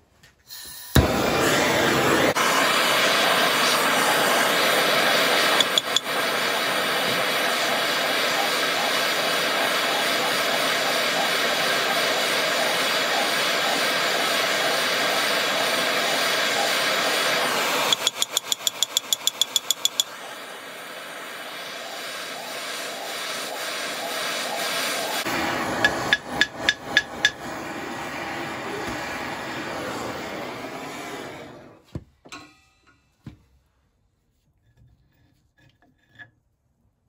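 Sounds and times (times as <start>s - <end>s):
blowtorch flame hissing: 0.6s - 31.8s
hammer tapping on metal: 17.9s - 20.1s, 25.8s - 27.4s.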